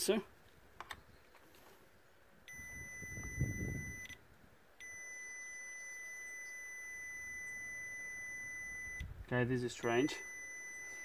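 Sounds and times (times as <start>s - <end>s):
multimeter continuity beep: 2.4s - 4.2s, 4.8s - 11.0s.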